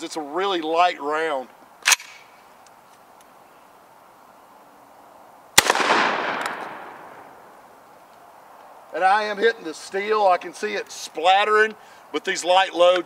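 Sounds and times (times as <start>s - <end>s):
shotgun shot echoing: 5.6s - 7.4s.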